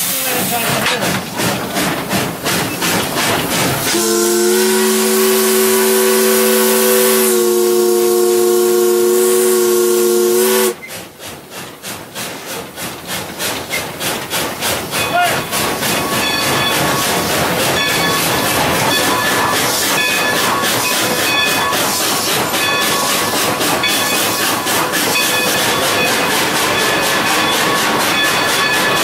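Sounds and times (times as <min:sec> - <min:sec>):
locomotive rhythmic beating: 0:00.4 - 0:29.0
steam locomotive chime whistle: 0:03.8 - 0:10.9, 0:16.0 - 0:29.0.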